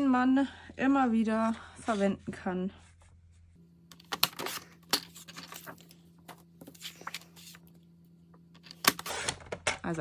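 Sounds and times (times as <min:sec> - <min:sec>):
paper rustling: 0:04.0 - 0:07.7.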